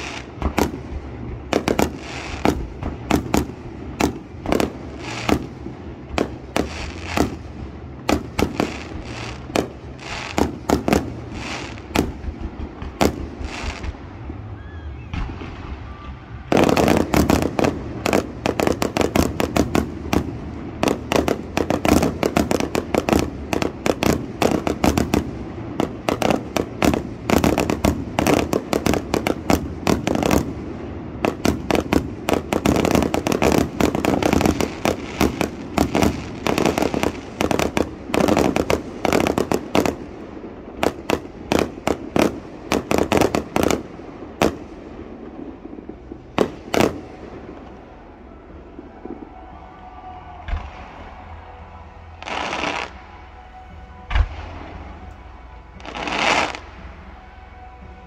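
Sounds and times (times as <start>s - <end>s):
fireworks bursts and crackling: 0.0s - 58.0s.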